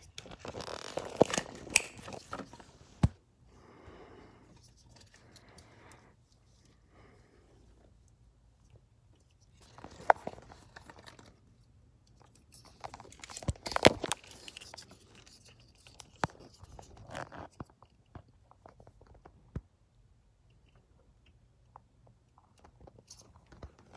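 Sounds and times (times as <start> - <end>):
wires rustling and crackling: 0.0 - 3.1, 4.4 - 19.5
plastic connectors clicking: 0.2 - 2.4.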